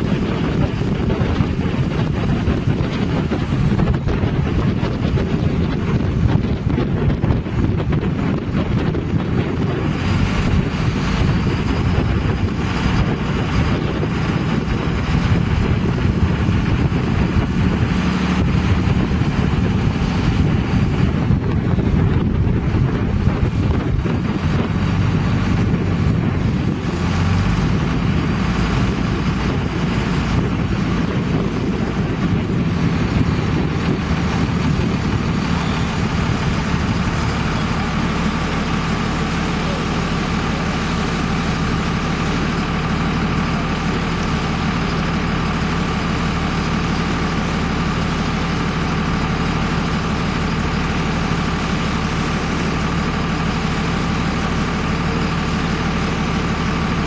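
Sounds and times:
wind on microphone: 0.0 - 39.2
truck engine idling: 0.0 - 57.0.

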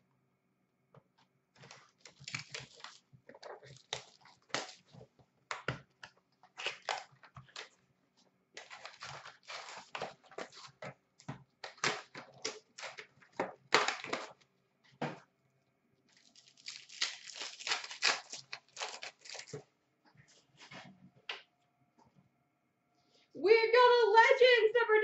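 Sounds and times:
card pack wrappers tearing: 1.6 - 5.0, 6.5 - 7.7, 8.6 - 10.8, 13.7 - 14.3, 16.1 - 19.6
cards being shuffled: 1.6 - 5.0, 8.6 - 10.9, 16.1 - 19.6.

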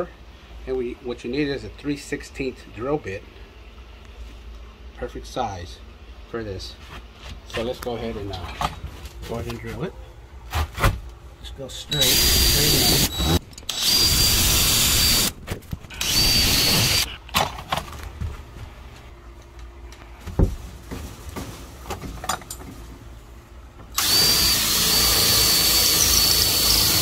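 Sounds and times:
cordless drill whining: 11.9 - 17.1, 24.0 - 27.0.

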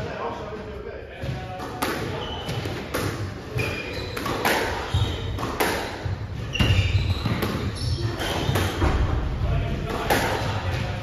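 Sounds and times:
shoes squeaking on wooden floor: 2.1 - 9.0.

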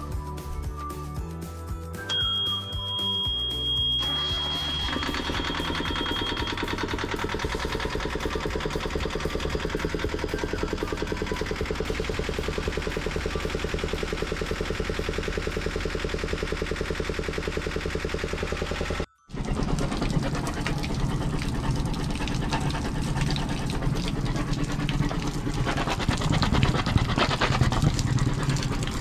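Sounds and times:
high warning buzzer: 2.4 - 7.4
diesel engine clattering: 4.1 - 29.0.

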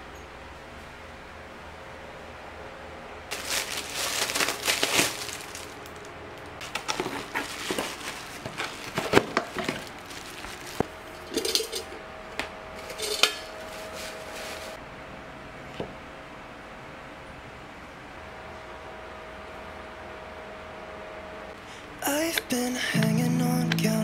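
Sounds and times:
cardboard and plastic wrap rustling: 3.3 - 11.9, 12.8 - 14.8
metal canister lid clinking: 11.3 - 12.0, 12.8 - 13.5.

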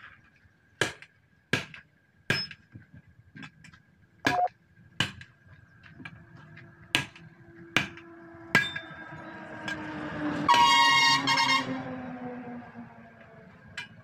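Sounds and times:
vehicle approaching: 5.6 - 14.0
vehicle horn: 10.5 - 11.9.

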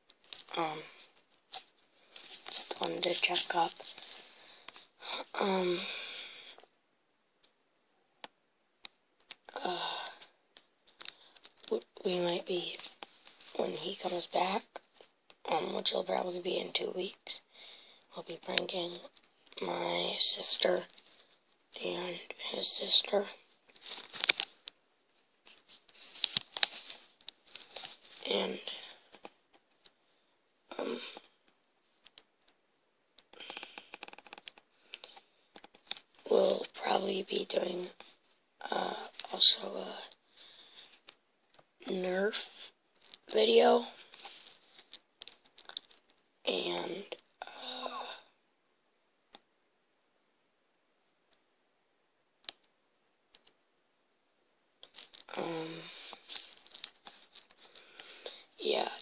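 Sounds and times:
boy's wordless vocal sound: 0.4 - 1.1, 2.6 - 4.0, 5.0 - 6.5, 11.7 - 12.8, 13.5 - 14.8, 18.1 - 20.9, 21.8 - 23.4, 28.2 - 29.0, 30.7 - 31.3, 38.6 - 40.1, 41.8 - 44.1, 46.4 - 48.3, 55.2 - 56.2, 58.2 - 59.0
boy's drawn-out vocal sound: 5.0 - 6.3.

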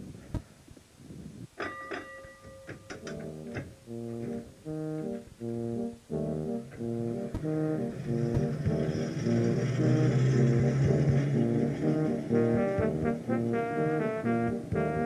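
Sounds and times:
clicks: 2.7 - 5.2
brass music: 3.0 - 15.0.

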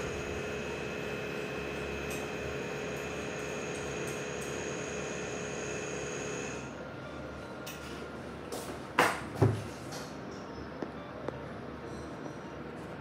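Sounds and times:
machine hum with whining tones: 0.0 - 8.5.

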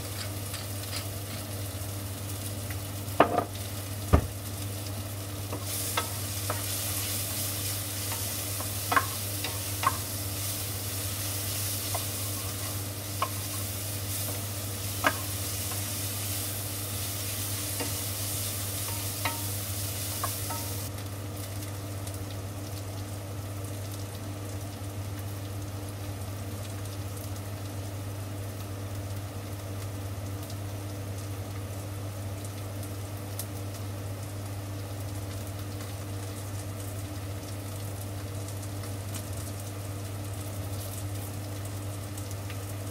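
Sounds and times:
onions sizzling in a frying pan: 0.0 - 42.9
spatula knocking against pan: 15.0 - 15.3.

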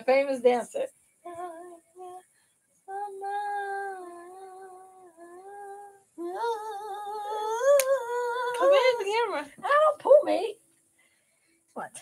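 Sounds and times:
woman humming: 2.9 - 8.6.

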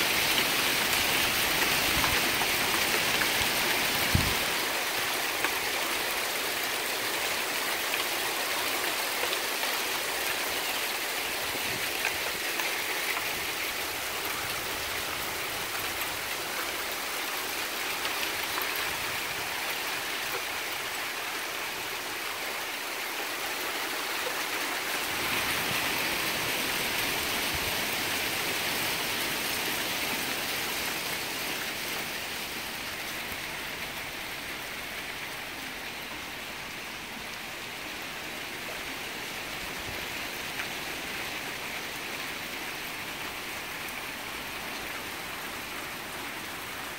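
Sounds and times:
hail pelting down: 0.1 - 20.9.

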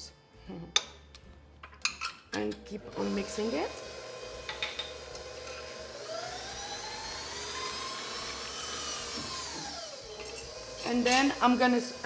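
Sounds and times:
stand mixer motor whine: 2.9 - 12.0.

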